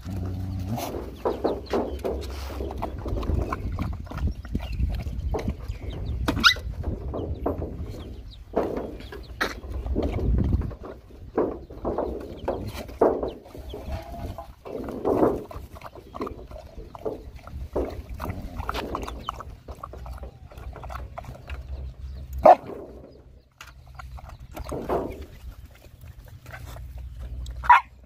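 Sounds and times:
puppies lapping and slurping: 0.0 - 28.0.

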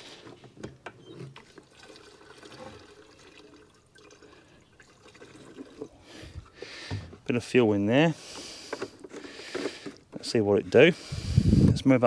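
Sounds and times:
liquid trickling into tank: 1.3 - 6.8.

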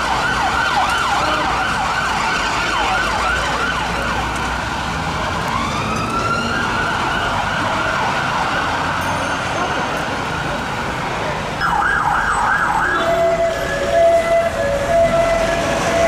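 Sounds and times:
emergency siren wailing and yelping: 0.0 - 4.4, 5.3 - 9.1, 11.6 - 16.0
traffic noise: 0.0 - 16.0.

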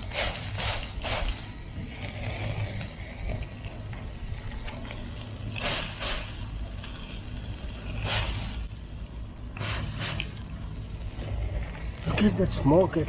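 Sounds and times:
spray bottle hissing on charcoal: 0.0 - 1.6, 5.5 - 6.6, 7.8 - 8.6, 9.5 - 10.4.

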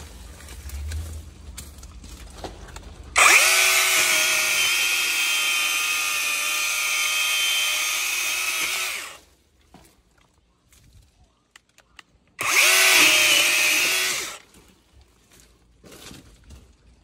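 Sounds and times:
electric chainsaw whining: 3.1 - 9.2, 12.4 - 14.5.

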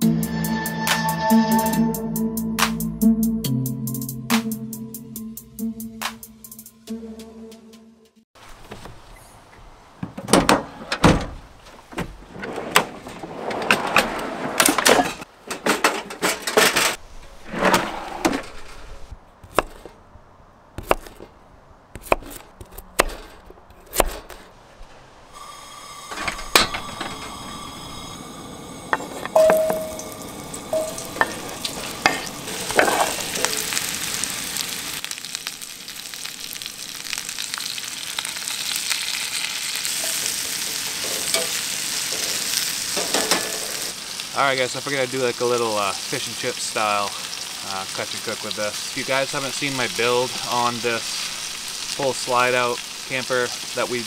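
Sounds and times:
camp kitchen gear clattering: 11.8 - 19.0, 26.1 - 27.4, 28.9 - 33.8, 40.0 - 43.9
camp stove burner hissing: 25.3 - 54.0
potatoes sizzling in a pan: 29.4 - 54.0.

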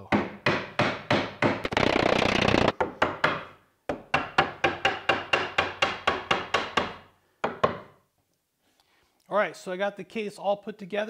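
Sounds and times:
wooden mallet tapping wood: 2.8 - 7.9.

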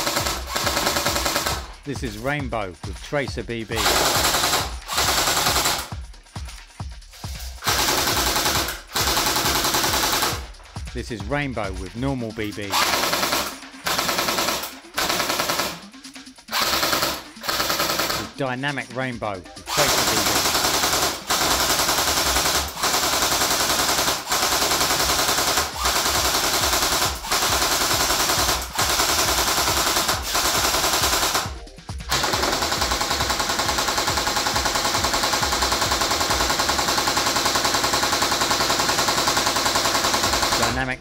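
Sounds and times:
airsoft gun firing full auto: 0.0 - 1.8, 3.8 - 5.9, 7.6 - 10.5, 12.7 - 15.8, 16.5 - 18.3, 19.7 - 31.5, 32.1 - 40.8.

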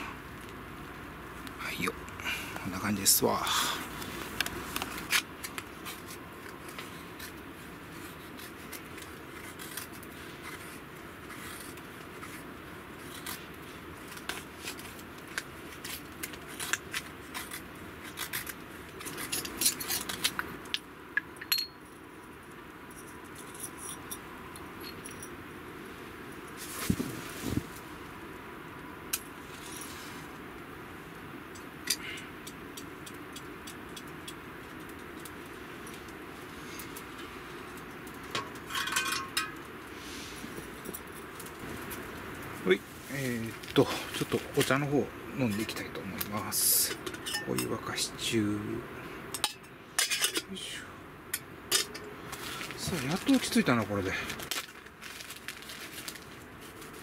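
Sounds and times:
knife shaving wood: 3.7 - 20.4.

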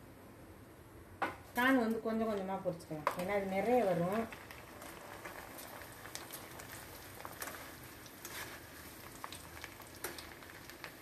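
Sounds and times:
hot oil sizzling: 3.0 - 11.0
crackles and pops in oil: 4.2 - 11.0.

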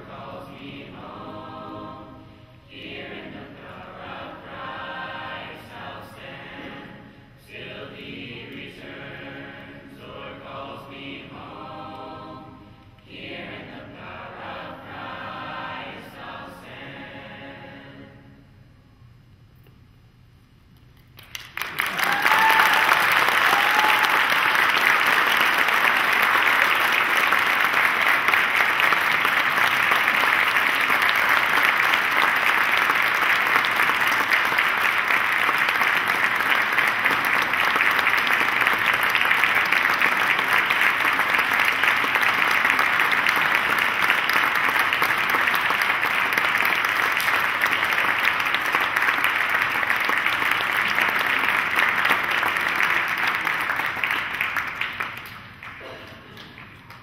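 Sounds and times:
audience applauding: 21.2 - 57.0.

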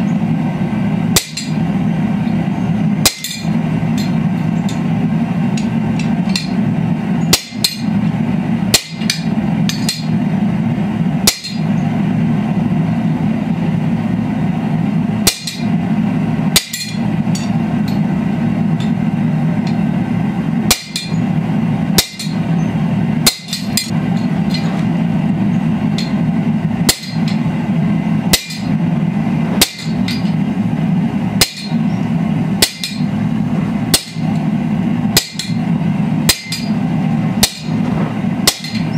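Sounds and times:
steady low hum: 0.0 - 38.9
hammer striking metal on anvil: 1.1 - 1.6, 3.0 - 4.9, 5.6 - 6.6, 7.3 - 8.1, 8.7 - 10.2, 11.2 - 11.7, 15.2 - 15.7, 16.5 - 18.1, 19.6 - 19.8, 20.7 - 21.2, 22.0 - 22.5, 23.2 - 24.9, 25.9 - 26.2, 26.8 - 27.5, 28.3 - 28.8, 29.6 - 30.4, 31.4 - 31.8, 32.6 - 33.1, 33.9 - 34.5, 35.1 - 35.7, 36.3 - 36.8, 37.4 - 38.9.

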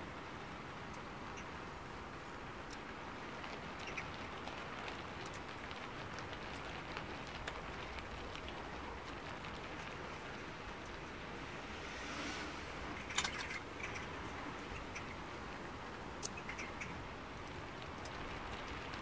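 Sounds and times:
rain patter: 0.0 - 19.0.

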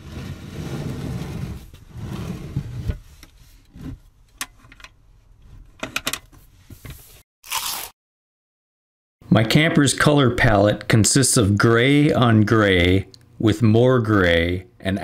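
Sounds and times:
wood rubbing and sliding: 0.0 - 4.0.

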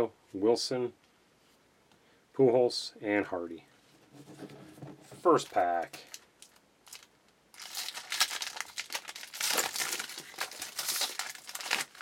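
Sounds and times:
foil wrapper crinkling: 5.2 - 12.0.

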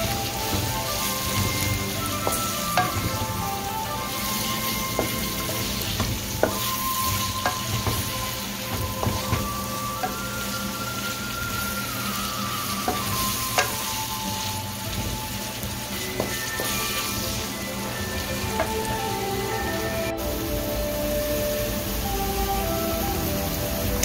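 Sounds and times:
onions sizzling in oil: 0.0 - 24.0
spatula tapping and scraping pan: 0.3 - 10.3, 12.8 - 14.0, 14.9 - 17.3.

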